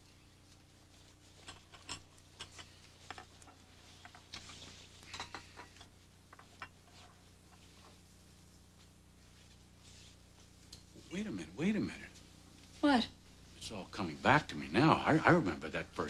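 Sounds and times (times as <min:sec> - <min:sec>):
low steady hum: 0:00.0 - 0:16.0
faint clicks and rustles: 0:00.4 - 0:11.1.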